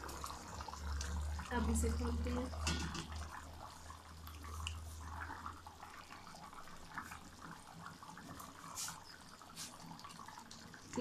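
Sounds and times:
broth bubbling: 0:00.0 - 0:11.0.

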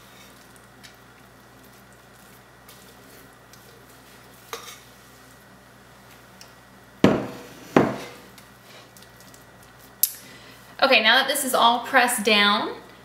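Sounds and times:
kitchenware knocks: 0:07.0 - 0:08.0.

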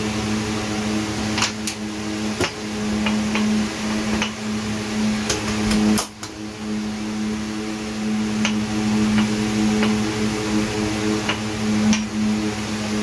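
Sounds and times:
steady machine hum: 0:00.0 - 0:13.0.

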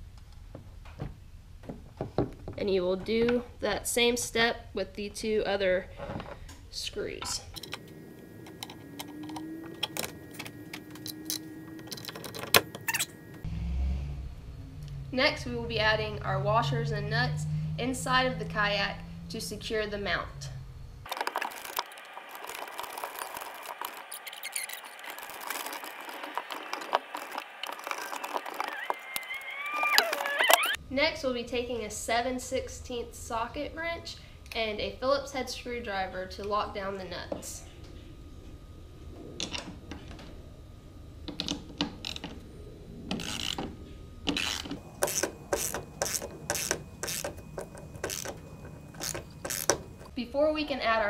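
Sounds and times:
small metal parts clicking and scraping: 0:21.1 - 0:30.8, 0:44.3 - 0:50.1.

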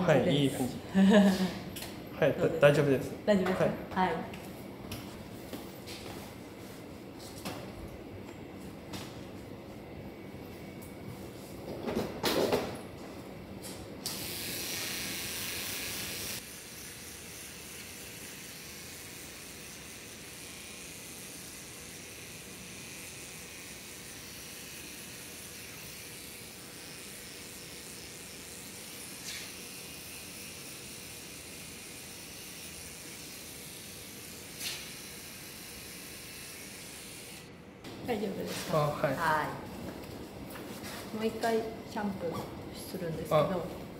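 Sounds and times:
electric hair trimmer running: 0:14.0 - 0:37.5
hiss: 0:14.1 - 0:19.5.

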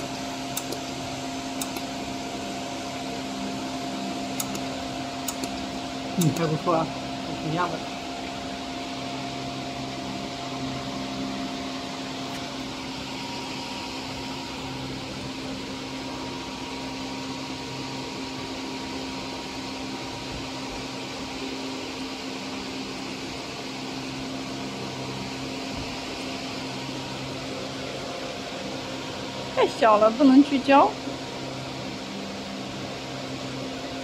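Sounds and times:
cooling fans whirring: 0:00.0 - 0:34.0.

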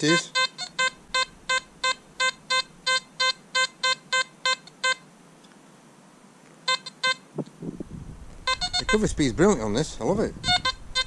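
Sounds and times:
metal detector short beeps: 0:00.0 - 0:05.0, 0:06.7 - 0:07.2, 0:08.5 - 0:09.2, 0:10.4 - 0:11.0.

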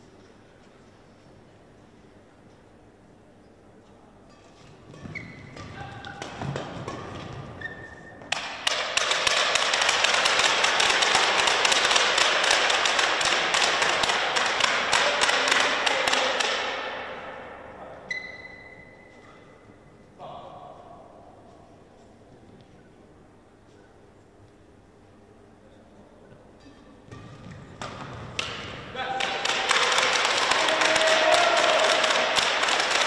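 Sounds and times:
shoes squeaking on court: 0:04.3 - 0:08.3, 0:18.1 - 0:19.5
racket hitting shuttlecock: 0:04.3 - 0:17.6, 0:26.6 - 0:33.0
crowd applause: 0:29.0 - 0:33.0.

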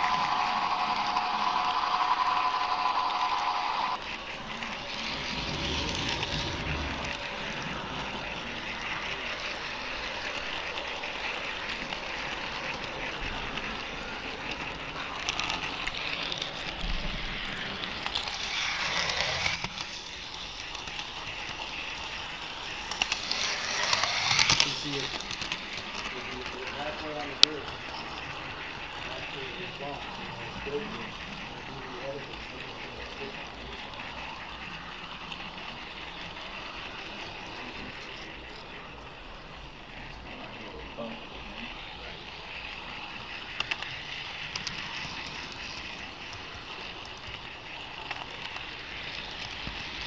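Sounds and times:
model train running: 0:00.0 - 0:50.0
low rumbles: 0:04.4 - 0:09.0.

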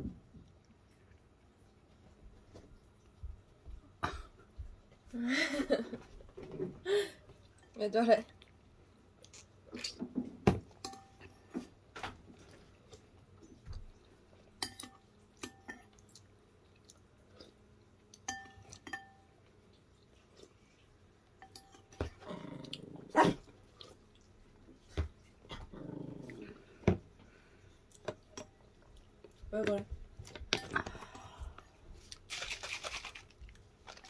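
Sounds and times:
spoon clinking on ceramic bowl: 0:10.8 - 0:11.2, 0:14.6 - 0:15.9, 0:18.2 - 0:19.3, 0:21.4 - 0:22.0
dog grumbling: 0:22.2 - 0:23.4, 0:25.5 - 0:26.6.

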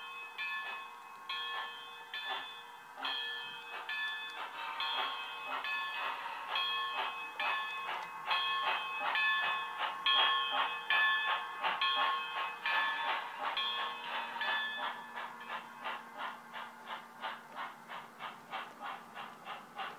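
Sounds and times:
bell-like ring: 0:00.0 - 0:15.8
model steam locomotive chuffs: 0:00.0 - 0:19.9.

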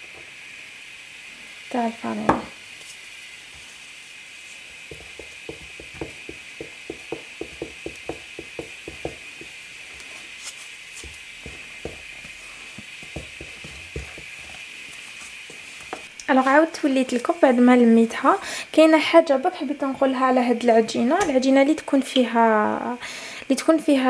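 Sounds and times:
faint steady hiss: 0:00.0 - 0:24.0
wooden spatula knocking steel bowl: 0:04.9 - 0:09.6, 0:11.4 - 0:12.1, 0:13.0 - 0:14.4.

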